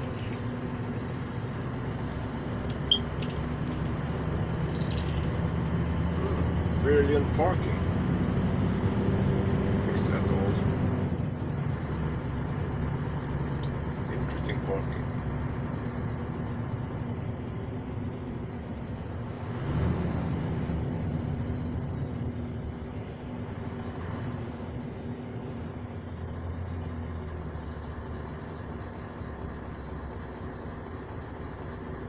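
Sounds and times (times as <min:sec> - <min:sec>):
truck engine droning: 0:00.0 - 0:32.0.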